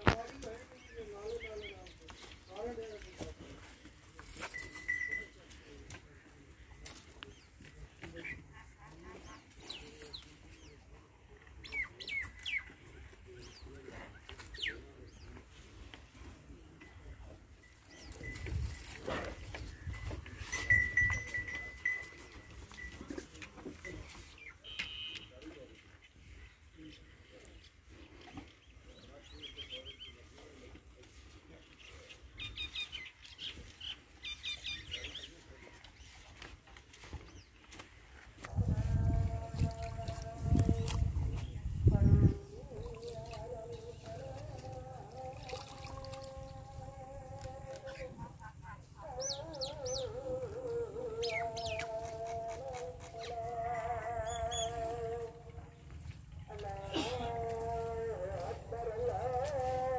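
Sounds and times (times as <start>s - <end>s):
small birds chirping: 6.6s - 15.5s, 24.2s - 38.1s, 47.2s - 57.5s.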